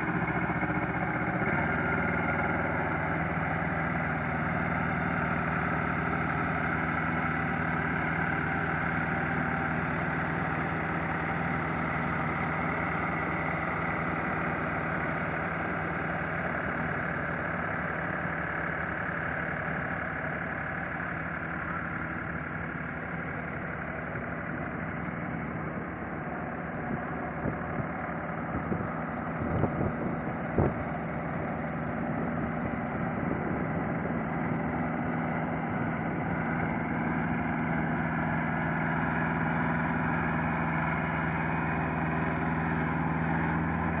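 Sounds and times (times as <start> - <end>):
diesel forklift engine running: 0.0 - 44.0.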